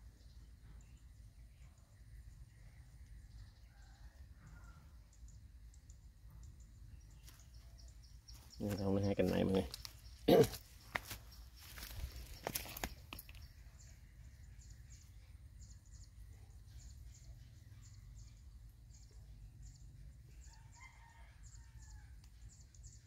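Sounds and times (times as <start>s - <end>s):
faint high chirping: 0.0s - 23.0s
rooster crowing: 20.4s - 22.2s.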